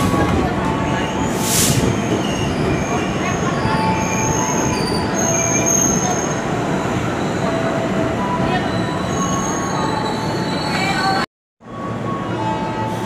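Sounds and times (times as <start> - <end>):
train wheels rumbling on rails: 0.0 - 7.2.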